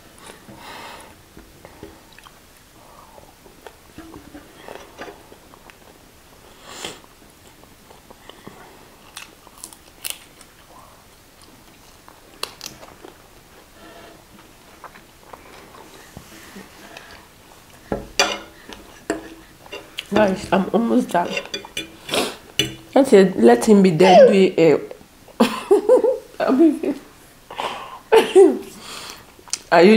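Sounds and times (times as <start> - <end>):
forks clicking on plates: 18.2 - 23.0.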